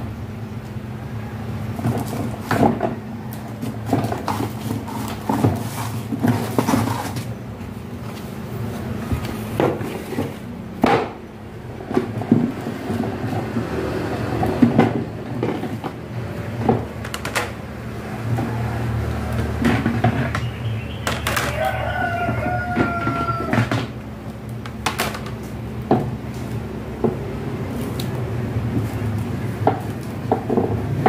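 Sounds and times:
plastic panels knocking and clacking: 14.4 - 16.0, 16.6 - 17.6, 22.4 - 24.0, 24.7 - 26.2, 29.6 - 31.0
rooster crowing: 21.2 - 24.0.

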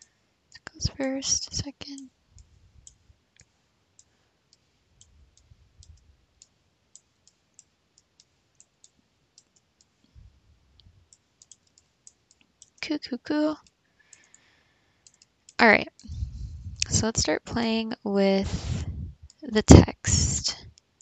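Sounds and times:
computer mouse clicking: 1.8 - 10.2, 11.1 - 12.8, 13.6 - 16.2
soft low bumps: 16.0 - 17.3, 18.4 - 19.4.

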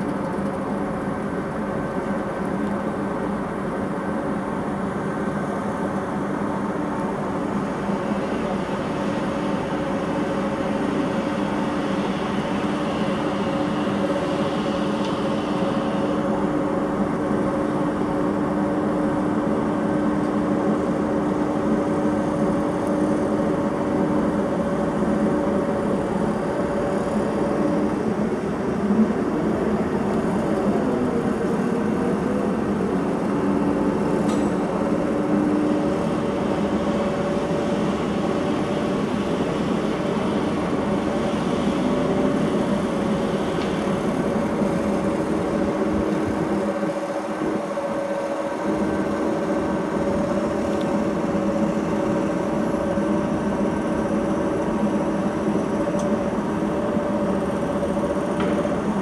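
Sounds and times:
mechanical droning hum: 0.0 - 59.0.

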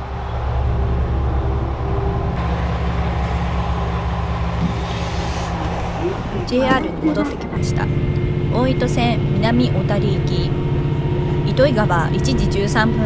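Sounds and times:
diesel railcar engine idling: 0.0 - 13.0.

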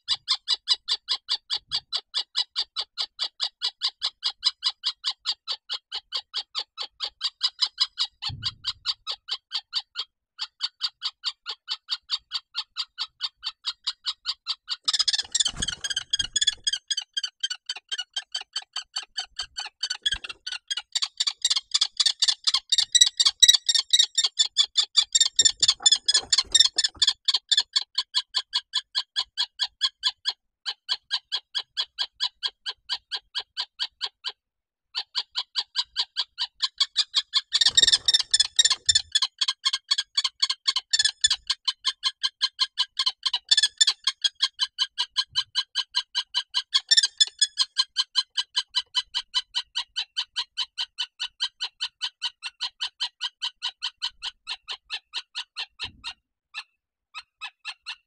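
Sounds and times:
kestrel shrill alarm calls: 13.0 - 27.8, 36.0 - 39.8.

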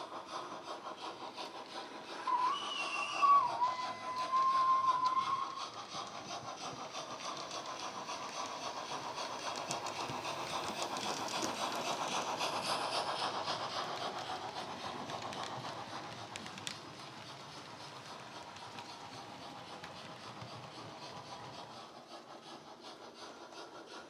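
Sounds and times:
model train steam exhaust beats: 0.0 - 24.0
train whistle: 2.2 - 5.6.

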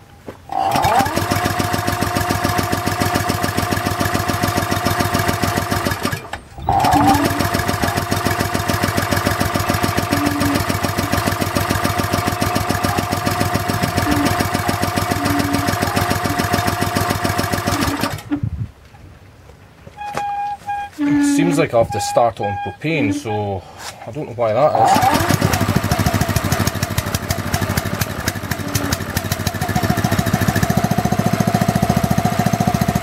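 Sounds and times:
small petrol engine running: 0.5 - 18.4, 24.8 - 33.0.

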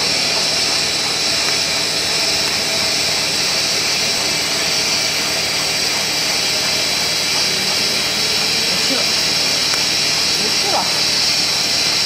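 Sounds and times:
bubble film machine hissing: 0.0 - 12.0.

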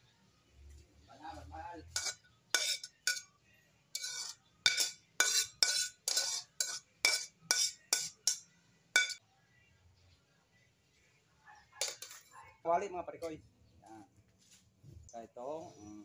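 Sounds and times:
metal tongs scraping a plate: 1.9 - 3.3, 3.9 - 8.4, 9.0 - 9.2, 11.8 - 12.4.

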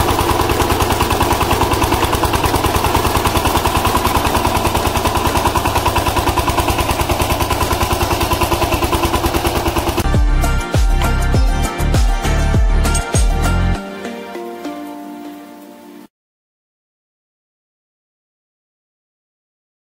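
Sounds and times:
diesel tiller engine running: 0.0 - 13.8.

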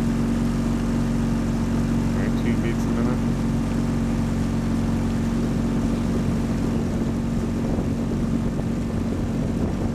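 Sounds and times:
motorboat engine droning: 0.0 - 9.9
water noise: 0.0 - 9.9
wind noise: 5.3 - 9.9.

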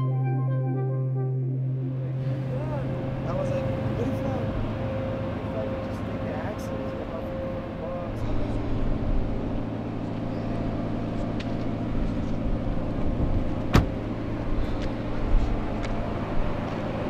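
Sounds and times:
steady mechanical hum: 2.2 - 17.0
truck door slamming: 13.2 - 14.0.

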